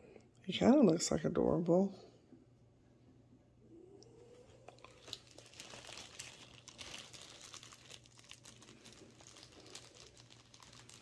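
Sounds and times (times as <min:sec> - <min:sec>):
plastic wrapper crinkling: 0:04.7 - 0:11.0.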